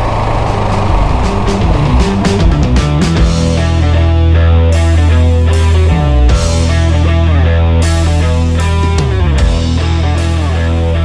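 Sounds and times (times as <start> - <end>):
electric guitar: 0.0 - 11.0
rock music: 0.0 - 11.0.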